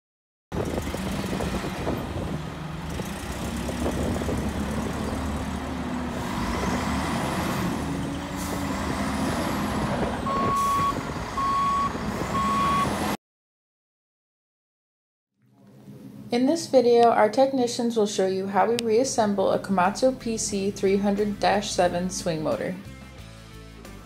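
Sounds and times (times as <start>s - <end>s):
heavy vehicle engine rumble: 0.5s - 13.2s
reversing alarm beeps: 10.3s - 13.0s.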